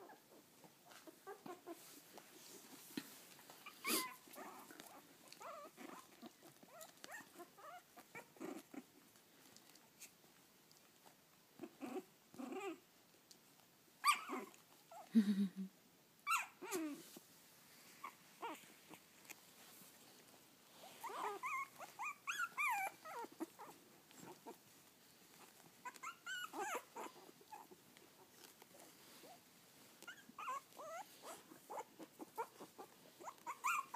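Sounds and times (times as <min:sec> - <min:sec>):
puppies whimpering and squeaking: 0:03.6 - 0:08.8, 0:14.0 - 0:15.1, 0:16.3 - 0:17.0, 0:18.0 - 0:19.0, 0:20.8 - 0:24.6, 0:25.3 - 0:29.4, 0:30.0 - 0:33.9.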